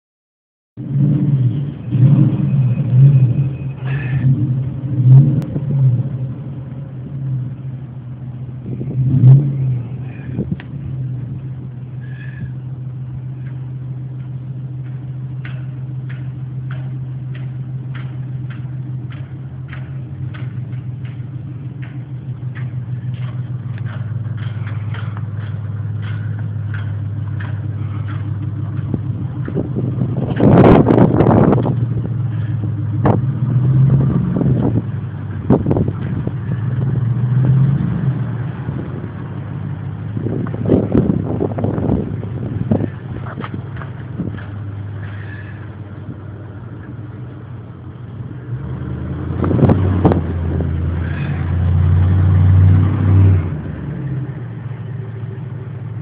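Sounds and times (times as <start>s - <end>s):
low engine hum: 0.8s - 56.0s
knocks and bumps: 14.2s - 33.3s.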